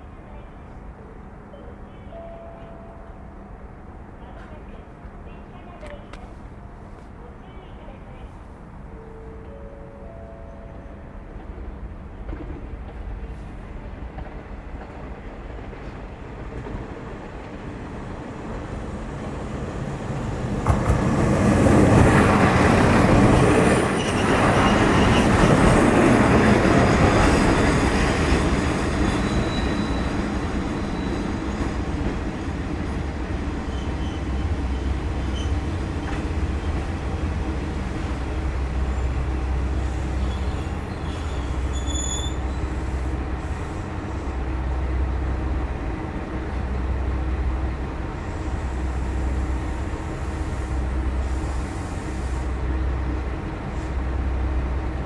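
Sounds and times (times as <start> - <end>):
diesel railcar running past: 0.0 - 55.0
wheels squealing: 29.0 - 31.6, 40.2 - 42.7.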